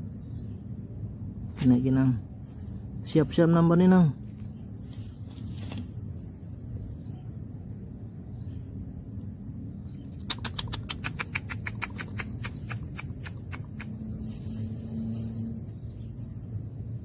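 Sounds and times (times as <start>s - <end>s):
low steady hum: 0.0s - 17.0s
animal clicking call: 10.1s - 14.1s.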